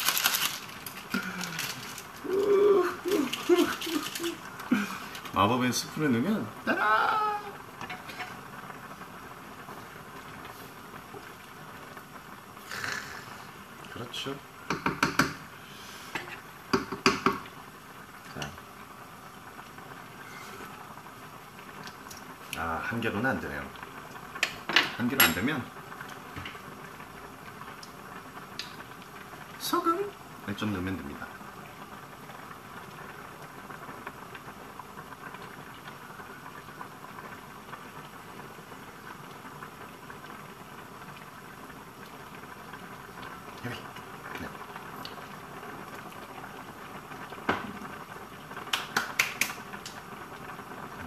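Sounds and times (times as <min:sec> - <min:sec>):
broth boiling in pot: 0:00.0 - 0:51.0
sharp knocks on metal pot: 0:14.7 - 0:15.4, 0:16.7 - 0:17.4.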